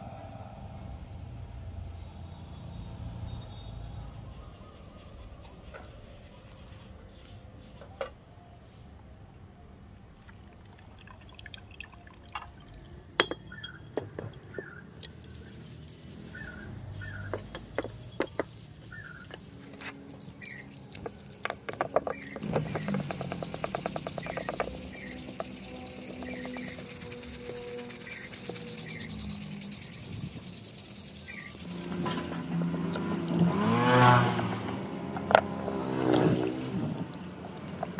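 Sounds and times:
metal clicks and clinks: 12.3 - 15.6, 16.5 - 33.4
rasping scrubbing strokes: 15.2 - 37.9.

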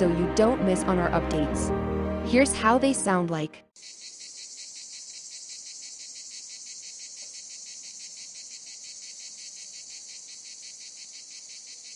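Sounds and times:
cicada buzzing: 3.8 - 11.9.

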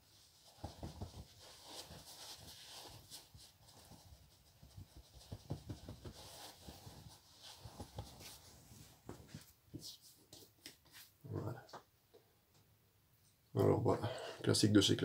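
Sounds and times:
towel rubbing skin: 0.1 - 10.2.

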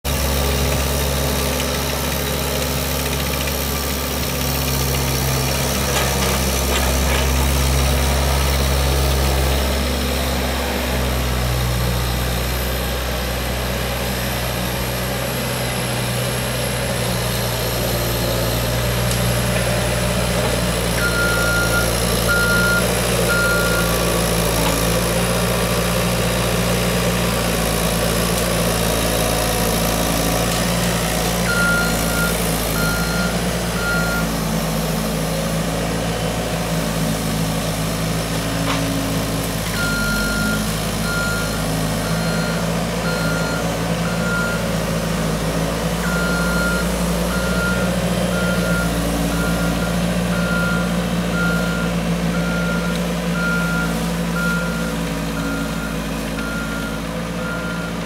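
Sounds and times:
loader diesel engine running: 0.0 - 58.0
backup alarm beeps: 46.1 - 58.0.

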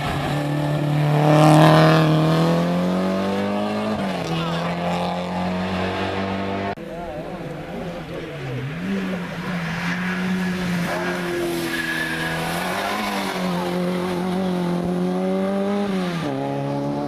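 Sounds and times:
race car engine at high revs: 0.0 - 6.8, 7.4 - 17.0
tyre squeal: 8.8 - 14.4.

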